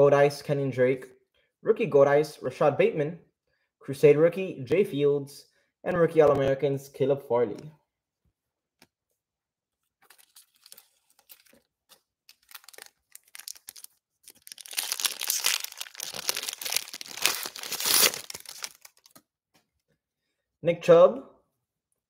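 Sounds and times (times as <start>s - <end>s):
foil wrapper tearing and crinkling: 10.0s - 19.2s.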